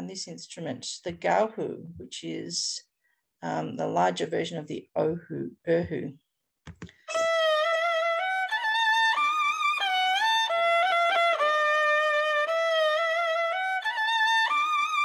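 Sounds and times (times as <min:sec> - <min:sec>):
bowed fiddle solo melody: 0:07.1 - 0:15.0.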